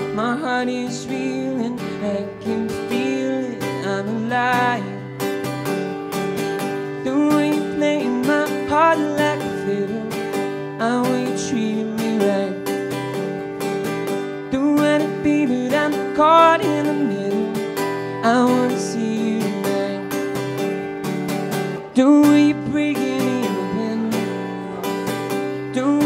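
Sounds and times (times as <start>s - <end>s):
man singing: 0.0s - 5.3s, 6.8s - 13.1s, 14.4s - 20.7s, 21.8s - 26.0s
strummed acoustic guitar: 0.0s - 26.0s.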